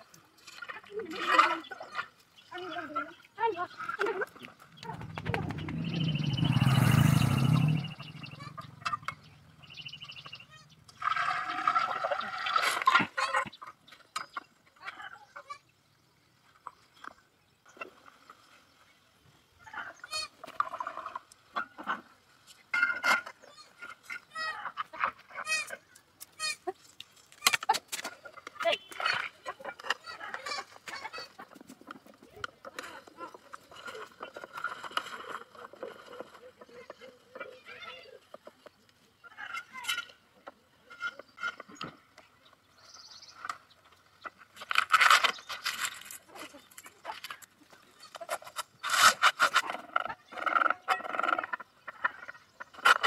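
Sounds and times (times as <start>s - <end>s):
poultry calling: 1.2s - 13.7s.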